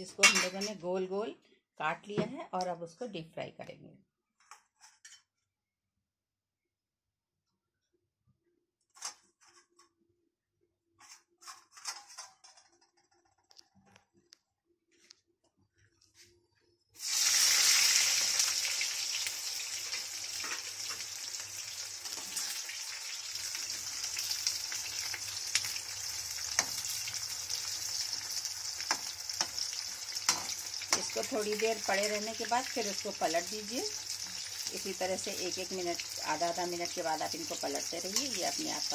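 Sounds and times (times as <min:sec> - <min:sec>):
vegetables deep-frying in oil: 0:17.0 - 0:38.9.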